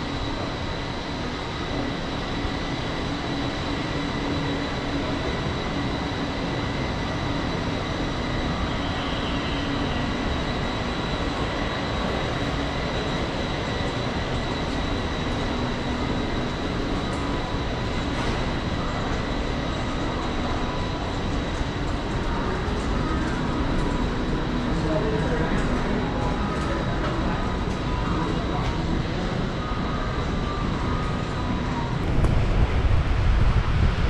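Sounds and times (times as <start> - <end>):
faint high whine: 0.0 - 34.0
low rumble and hiss: 32.0 - 34.0.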